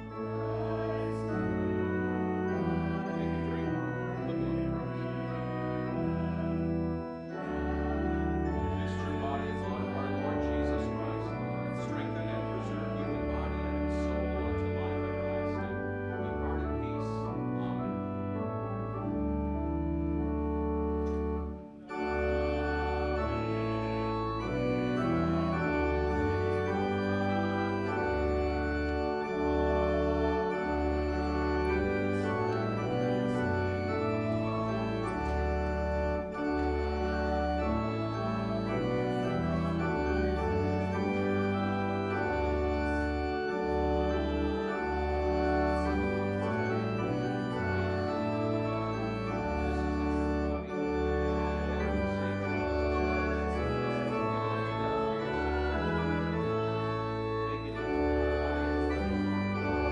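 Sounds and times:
church organ playing a hymn: 0:00.0 - 0:59.9.

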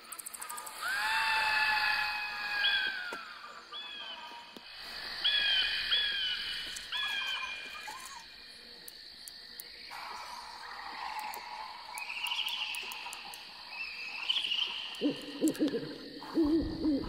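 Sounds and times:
steady high insect drone: 0:00.0 - 0:17.0
owl hooting: 0:14.3 - 0:17.0.

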